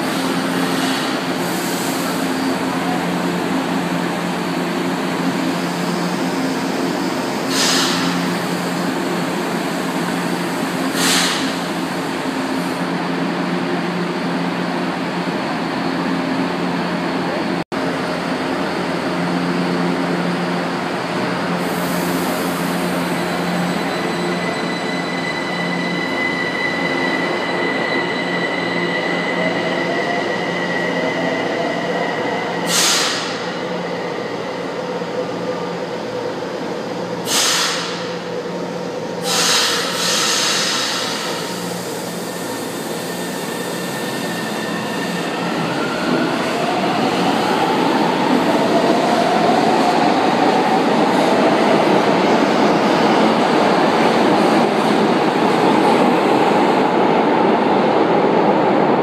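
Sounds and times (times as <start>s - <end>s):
subway train rumble: 0.0s - 59.0s
short hisses: 37.3s - 38.0s.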